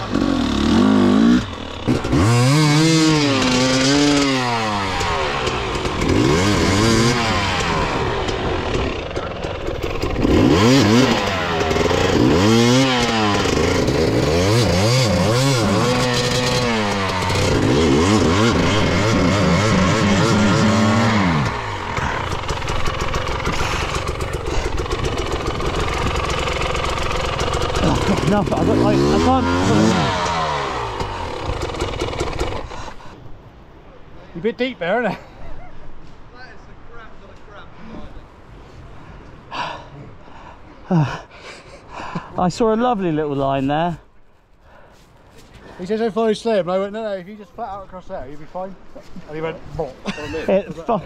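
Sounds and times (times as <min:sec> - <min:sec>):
dirt bike engine revving: 0:00.0 - 0:33.1.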